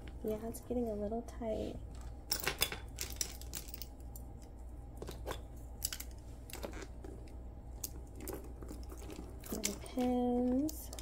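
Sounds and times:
small items clicking and tapping: 0:01.9 - 0:11.0.

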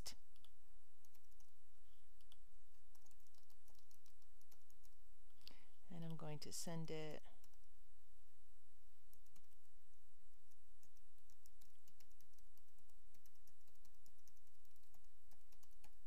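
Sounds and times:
keyboard typing clicks: 0:02.2 - 0:05.0, 0:10.5 - 0:16.0.

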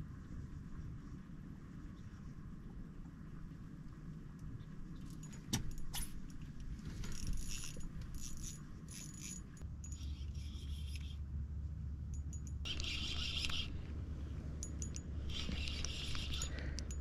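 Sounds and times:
steady low hum: 0:00.0 - 0:17.0
metallic jingling and clinking: 0:07.0 - 0:11.0, 0:12.1 - 0:17.0.

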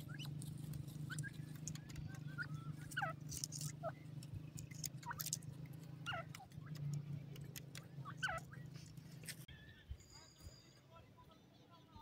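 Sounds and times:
chicks chirping: 0:00.0 - 0:09.4.

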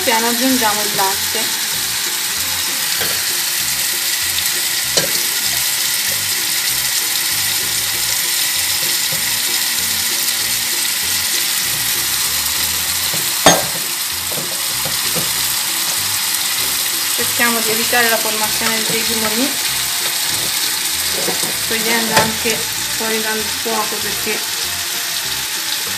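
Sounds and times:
wooden spoon stirring in pot: 0:00.1 - 0:23.6
spoon knocking against pot: 0:02.9 - 0:03.3, 0:05.0 - 0:06.3, 0:08.7 - 0:09.6, 0:13.0 - 0:16.1, 0:18.1 - 0:22.6.

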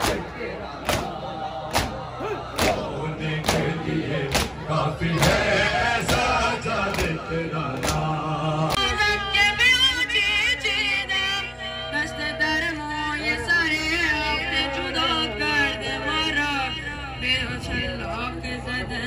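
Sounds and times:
men chanting: 0:00.0 - 0:12.6
rhythmic thuds: 0:00.8 - 0:08.8.

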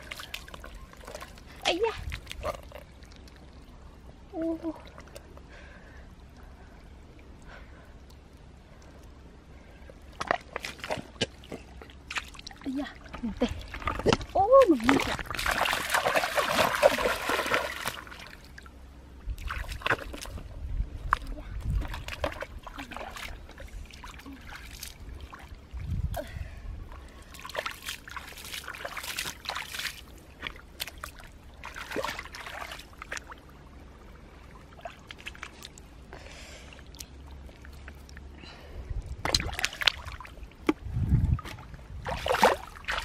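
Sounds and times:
sloshing and squelching in mud: 0:00.0 - 0:03.7, 0:09.8 - 0:18.7, 0:19.3 - 0:26.2, 0:26.9 - 0:36.1, 0:39.1 - 0:43.0.

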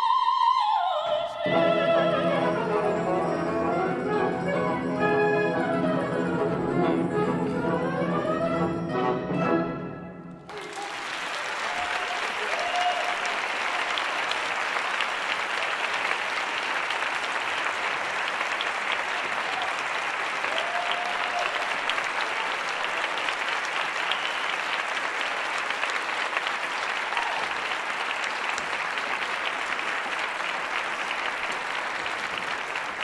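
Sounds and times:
audience applauding: 0:10.4 - 0:33.0.

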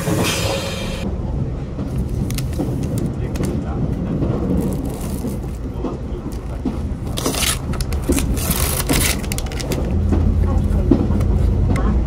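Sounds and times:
diesel train engine drone: 0:00.0 - 0:02.9, 0:09.2 - 0:12.0.

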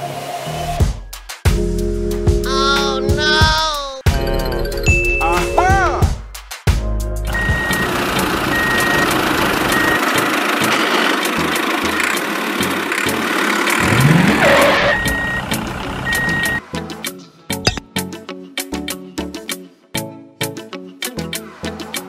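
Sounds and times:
reversing alarm beeping: 0:07.3 - 0:10.3, 0:13.8 - 0:16.6
vehicle engine running: 0:07.3 - 0:16.6.

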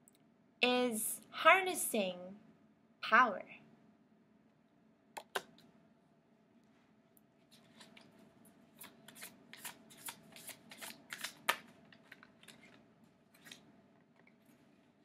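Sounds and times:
cards being shuffled: 0:07.5 - 0:14.7.

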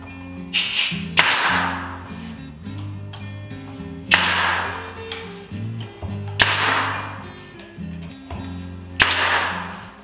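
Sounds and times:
background music with low notes: 0:00.0 - 0:10.0
nail gun firing: 0:00.6 - 0:02.0, 0:04.1 - 0:05.0, 0:06.3 - 0:07.2, 0:09.0 - 0:10.0.

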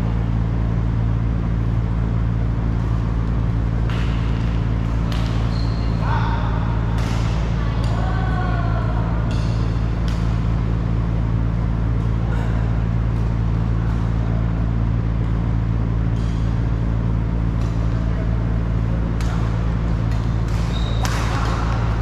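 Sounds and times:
steady low hum: 0:00.0 - 0:22.0
shoe squeak: 0:05.4 - 0:06.2, 0:20.6 - 0:21.4.

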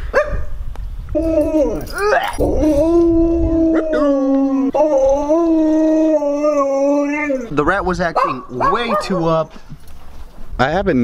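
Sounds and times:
husky howling: 0:01.1 - 0:09.4.

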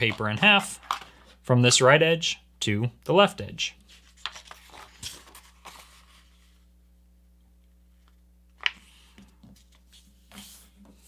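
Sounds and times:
paper rustling: 0:03.9 - 0:06.6.

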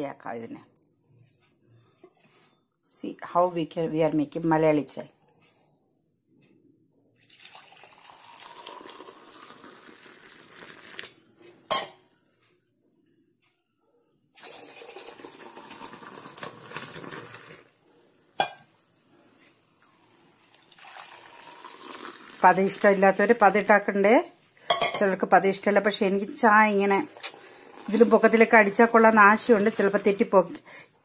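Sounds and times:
tea pouring stream splashing: 0:07.3 - 0:11.2, 0:14.4 - 0:17.7, 0:20.5 - 0:23.5, 0:27.1 - 0:30.2
metal mug clink: 0:11.7 - 0:12.0, 0:18.4 - 0:18.7, 0:24.7 - 0:25.0.

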